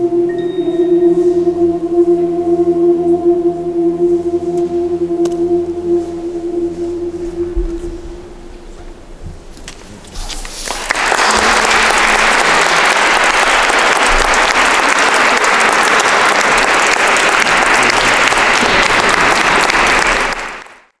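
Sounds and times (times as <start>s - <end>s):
audience applauding: 10.4s - 21.0s.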